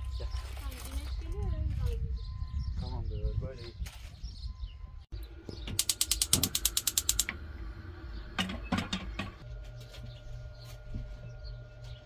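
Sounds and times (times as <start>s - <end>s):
gas hob spark igniter clicking: 5.6s - 7.5s.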